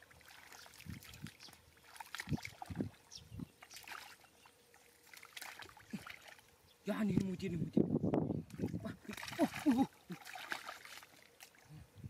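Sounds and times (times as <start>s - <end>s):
hands sloshing through mud: 0.0s - 6.5s, 8.5s - 11.7s
water splashes: 0.0s - 7.5s, 8.4s - 11.8s.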